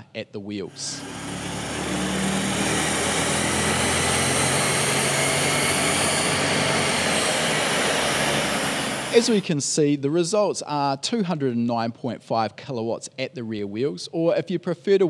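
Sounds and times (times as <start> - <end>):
tyres spinning on rollers: 0.7 - 9.4
car engine running under load: 0.8 - 9.5.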